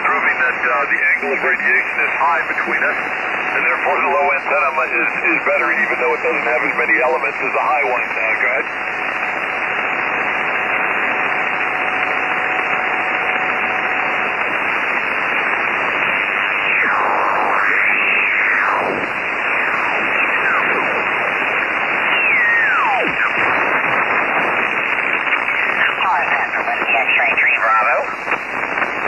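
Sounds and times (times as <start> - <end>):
radio receiver hiss and static: 0.0 - 29.0
radio signal whistles sliding in pitch: 16.3 - 21.2, 21.9 - 24.1.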